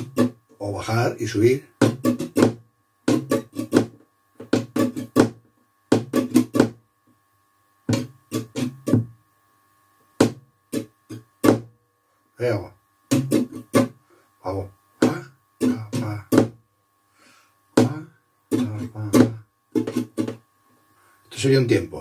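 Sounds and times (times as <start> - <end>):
flamenco guitar strumming: 0.0 - 0.5, 1.8 - 6.8, 7.9 - 9.2, 10.2 - 11.8, 13.1 - 14.0, 15.0 - 16.6, 17.8 - 20.5.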